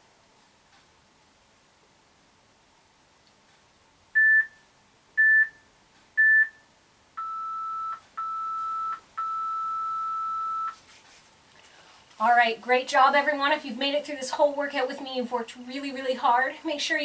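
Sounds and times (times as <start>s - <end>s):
electronic timer beeps: 4.2s - 4.6s, 5.2s - 5.6s, 6.2s - 6.6s, 7.2s - 10.8s.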